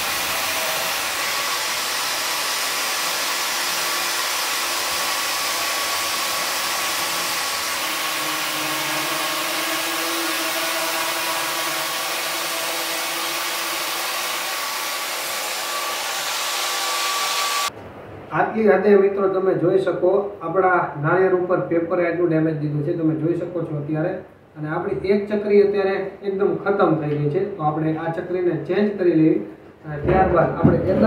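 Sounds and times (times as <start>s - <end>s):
angle grinder grinding: 0.0s - 17.7s.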